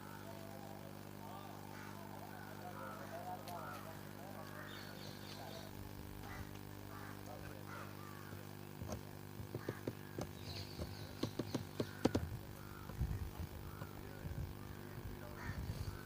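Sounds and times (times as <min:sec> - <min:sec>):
boat engine humming: 0:00.0 - 0:16.0
sharp knocks: 0:08.8 - 0:13.0.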